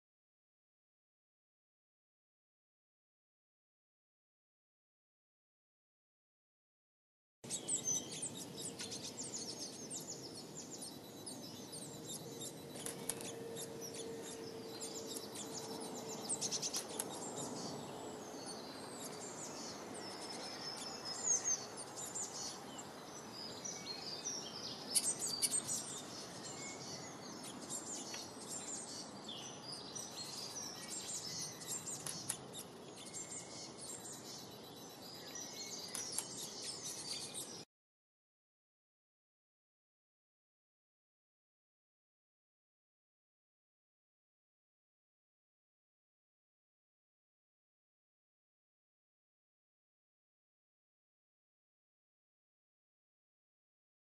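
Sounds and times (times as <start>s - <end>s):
songbirds chirping: 7.4s - 37.7s
steady outdoor hiss: 7.5s - 37.6s.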